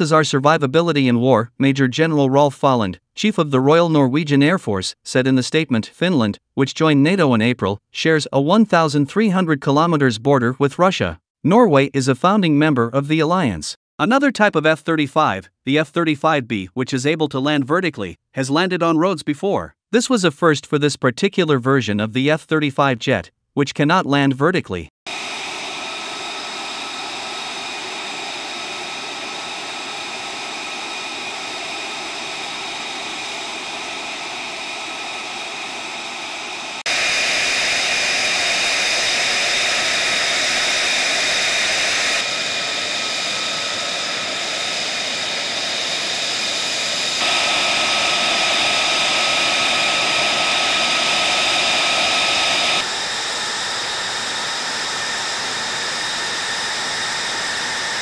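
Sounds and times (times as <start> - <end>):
jet engine idling whine: 25.1 - 58.0.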